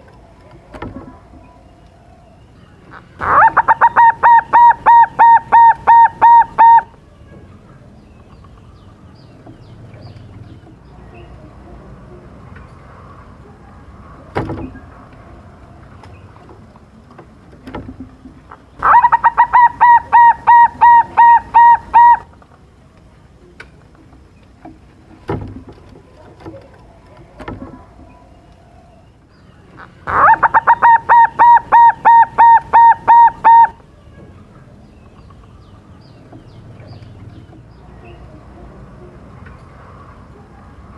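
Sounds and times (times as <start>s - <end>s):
dove cooing: 2.9s - 7.0s, 18.8s - 22.3s, 29.8s - 33.9s.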